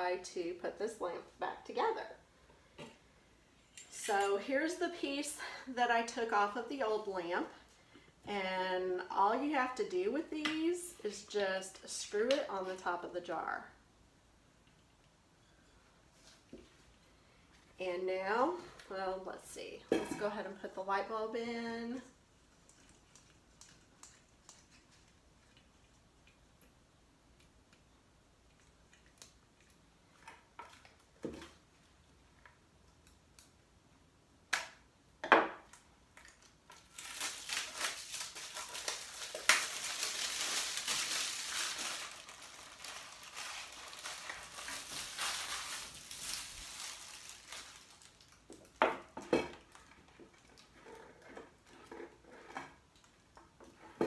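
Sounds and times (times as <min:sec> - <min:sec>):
lampshade rustling and crinkling: 0:36.1 - 0:54.0.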